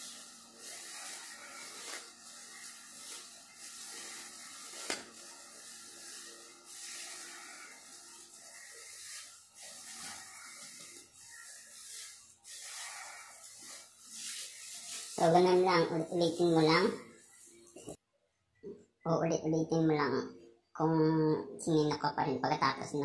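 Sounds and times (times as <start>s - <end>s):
plastic bag crinkling with breathing: 0.0s - 15.2s.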